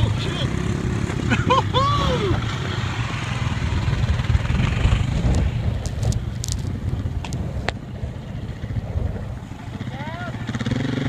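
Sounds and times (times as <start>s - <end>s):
dirt bike engine passing: 0.0s - 11.0s
wind on microphone: 3.2s - 10.0s.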